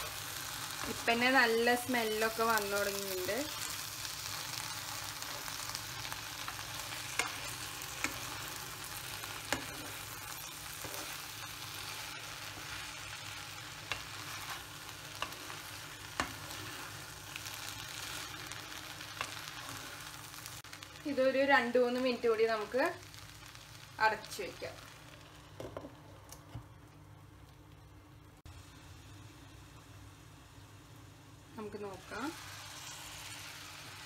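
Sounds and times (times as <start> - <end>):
vegetables sizzling in a pan: 0.0 - 27.3, 28.4 - 34.0
spatula stirring: 4.4 - 20.1.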